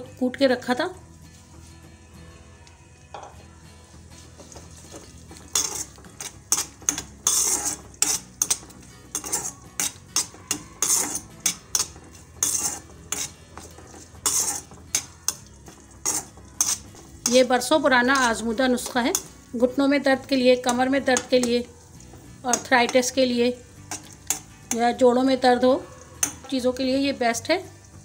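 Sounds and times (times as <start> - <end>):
metal spatula scraping iron pan: 4.2 - 19.7, 20.6 - 25.1, 25.9 - 26.8.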